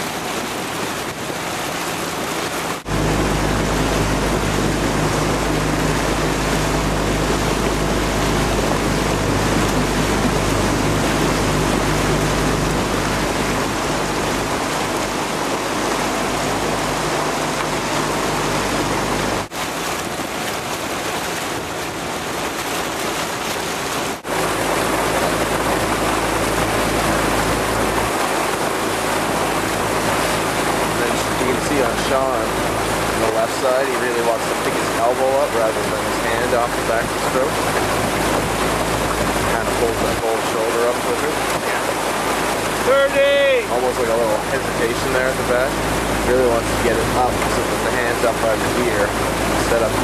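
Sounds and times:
low motor hum: 0.0s - 50.0s
water rushing: 0.0s - 50.0s
wind: 0.0s - 50.0s.

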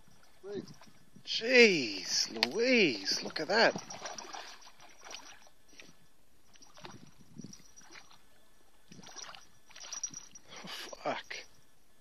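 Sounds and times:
fish splashing in water: 2.5s - 5.9s, 6.5s - 7.2s, 8.9s - 10.4s.

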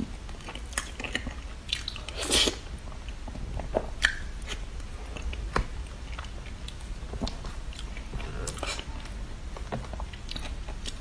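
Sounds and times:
wet chewing mouth noises: 0.3s - 11.0s
sharp mouth clicks: 4.0s - 4.6s.

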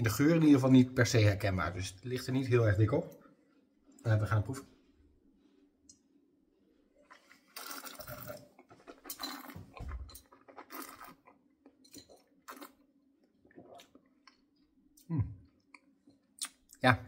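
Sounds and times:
person sipping wine: 7.0s - 11.2s
slurp of air through wine: 7.1s - 9.6s.

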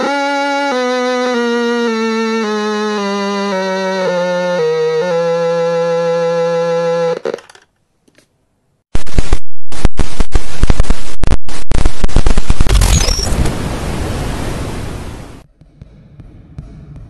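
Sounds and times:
harsh static noise burst: 8.9s - 15.4s.

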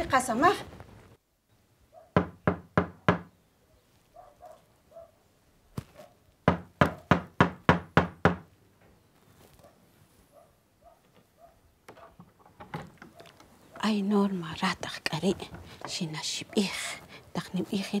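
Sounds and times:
knocking on wooden door: 2.2s - 3.3s, 6.5s - 8.5s.

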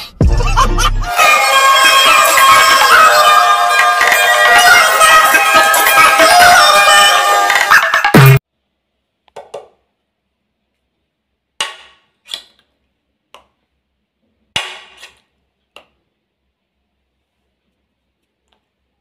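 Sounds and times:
background music: 0.0s - 8.4s.

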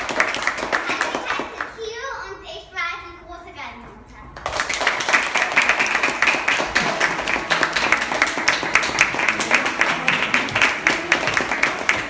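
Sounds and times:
audience applauding: 0.0s - 1.7s, 4.4s - 12.0s.

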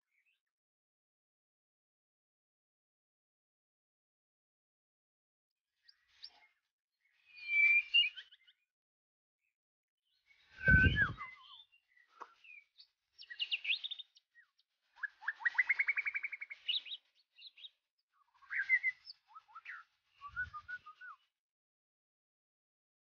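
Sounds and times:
bird singing whistles and trills: 5.8s - 8.7s, 10.1s - 21.3s.

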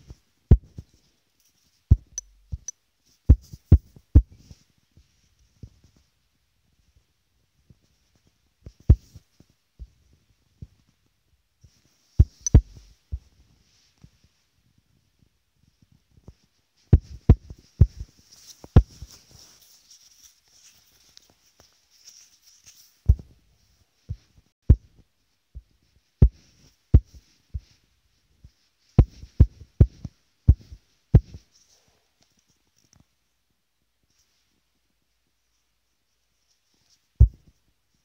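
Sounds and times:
fingertips tapping touchscreen: 1.9s - 2.7s, 12.2s - 12.9s.

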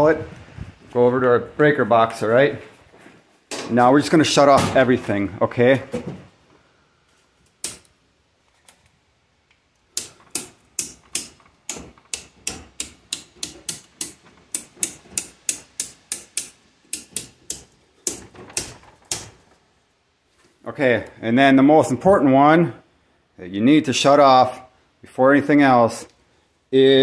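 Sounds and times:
circuit breakers clicking off: 9.7s - 19.6s.

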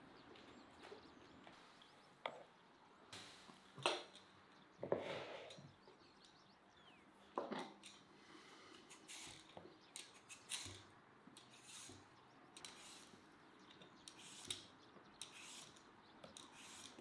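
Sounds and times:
peeler scraping potato skin: 8.9s - 10.8s, 11.4s - 12.0s, 12.6s - 13.1s, 14.0s - 17.0s.

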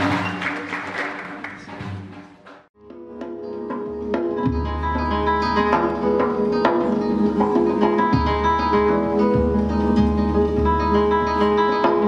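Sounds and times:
acoustic guitar playing: 2.8s - 12.0s.

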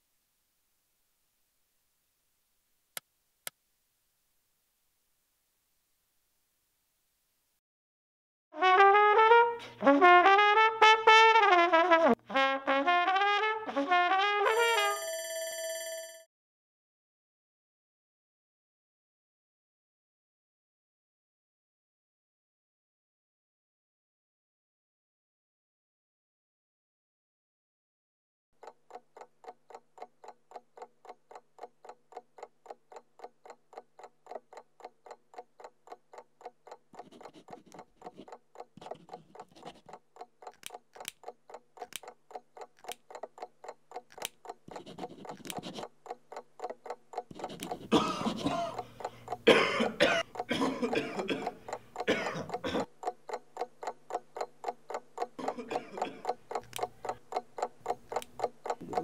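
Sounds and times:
clock ticking: 28.6s - 59.0s.

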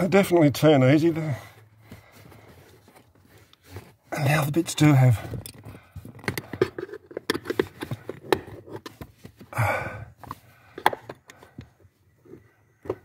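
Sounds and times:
heavy breath: 1.2s - 2.9s, 9.5s - 11.8s
rubbing and scraping on carpet: 1.6s - 4.8s.

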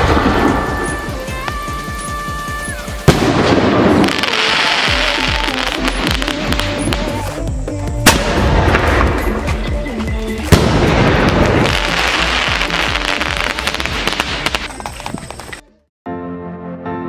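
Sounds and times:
firecracker bangs: 0.0s - 2.0s, 2.8s - 7.3s, 8.0s - 9.5s, 10.5s - 15.0s
background music: 0.0s - 17.0s.

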